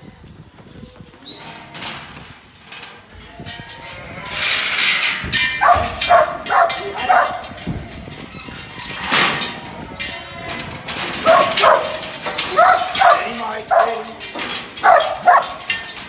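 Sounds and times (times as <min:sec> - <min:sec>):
dog barking: 0:05.6 - 0:07.4, 0:11.2 - 0:14.1, 0:14.8 - 0:15.6.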